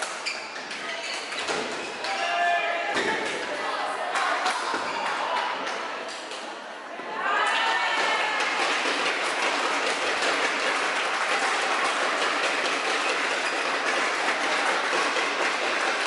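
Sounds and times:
crowd clapping: 7.4s - 16.0s.

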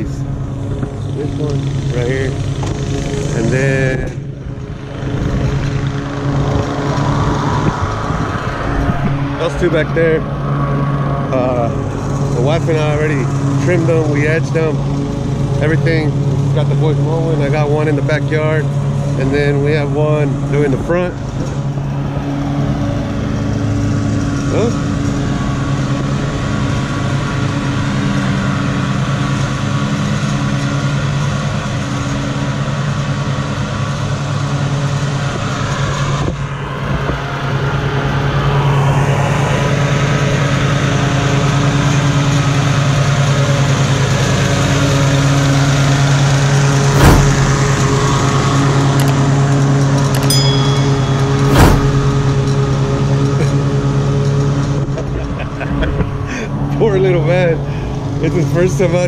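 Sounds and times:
sharp knocks: 46.9s - 48.1s, 50.2s - 52.7s.

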